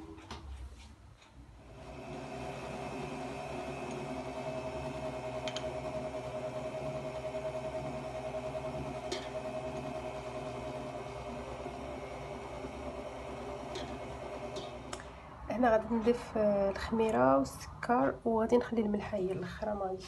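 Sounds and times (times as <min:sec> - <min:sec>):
stand mixer motor whine: 0:01.6 - 0:15.1.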